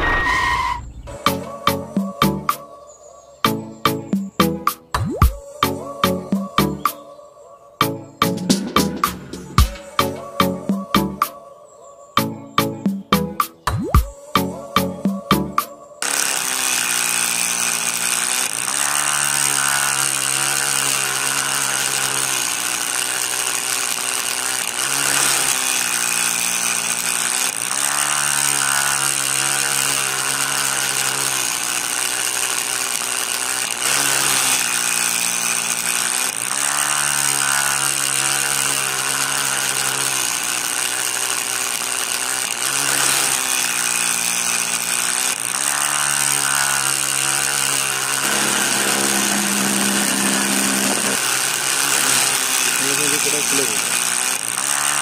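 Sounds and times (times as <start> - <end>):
small motor spinning disc blade: 0.0 - 2.7, 14.0 - 55.0.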